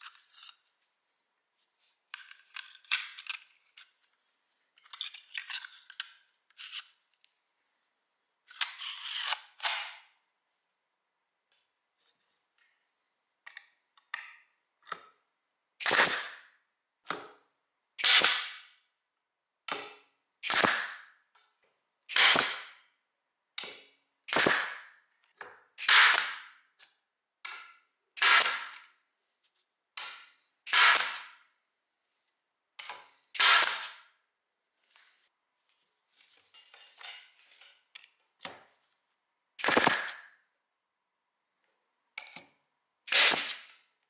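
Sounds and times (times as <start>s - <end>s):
pneumatic stapler firing: 15.8s - 16.4s, 18.0s - 18.7s, 20.4s - 21.1s, 22.1s - 22.8s, 24.3s - 24.9s, 25.8s - 26.5s, 28.2s - 28.8s, 30.7s - 31.4s, 33.4s - 34.0s, 39.6s - 40.3s, 43.1s - 43.8s.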